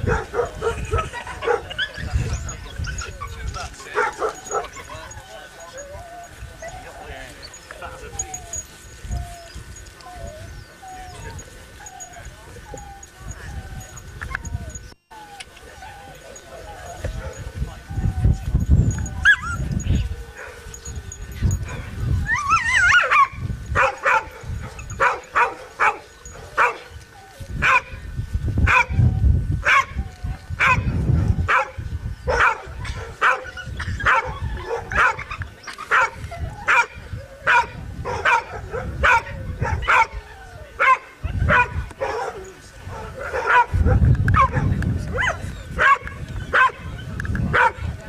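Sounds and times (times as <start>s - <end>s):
dog barking: 0.0s - 2.0s, 3.9s - 5.2s, 22.8s - 26.9s, 27.6s - 28.0s, 28.7s - 29.0s, 29.6s - 30.0s, 30.6s - 30.9s, 31.5s - 35.3s, 35.9s - 40.2s, 40.8s - 46.9s, 47.5s - 47.8s
dog yelping: 0.0s - 28.0s, 30.6s - 47.9s.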